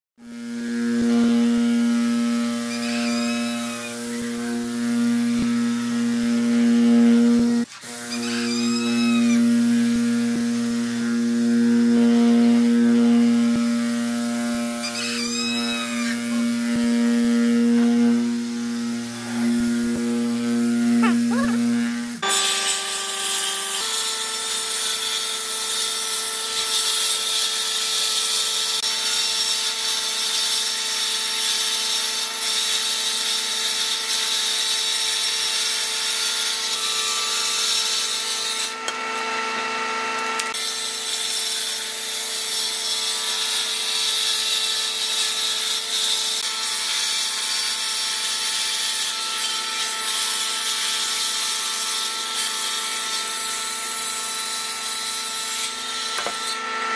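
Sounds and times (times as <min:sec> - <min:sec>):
electric sander: 0:00.2 - 0:56.9
jointer whining: 0:00.3 - 0:26.8.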